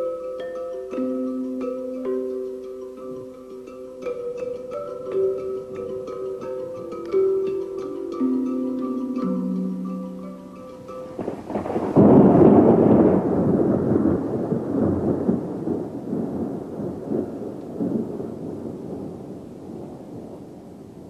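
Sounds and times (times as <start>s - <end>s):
mallet instrument music: 0.0s - 13.2s
thunder rumbling: 11.1s - 21.0s.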